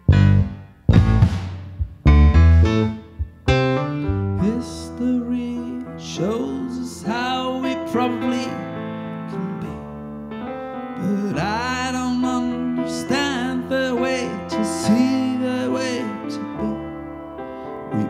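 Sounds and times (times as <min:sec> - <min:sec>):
piano chords: 0:00.0 - 0:18.0
man singing: 0:04.4 - 0:09.9, 0:11.0 - 0:17.1.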